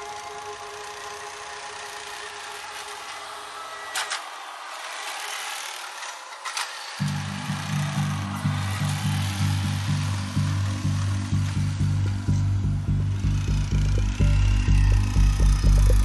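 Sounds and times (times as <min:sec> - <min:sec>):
background music: 0:00.0 - 0:06.1, 0:06.9 - 0:16.0
track loader diesel engine: 0:07.0 - 0:16.0.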